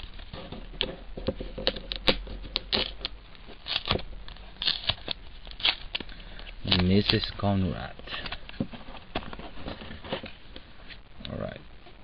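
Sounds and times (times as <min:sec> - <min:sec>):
wrapper tearing and crinkling: 0:01.6 - 0:07.5.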